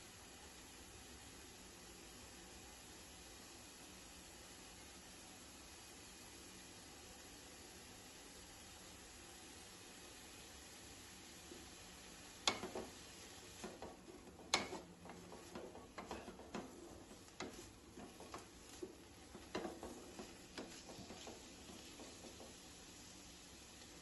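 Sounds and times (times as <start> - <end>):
wooden spatula scraping a pan: 12.5 - 23.0.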